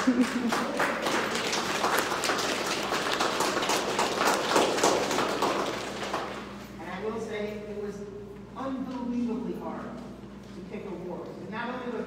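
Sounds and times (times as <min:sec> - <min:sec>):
people applauding: 0:00.0 - 0:06.6.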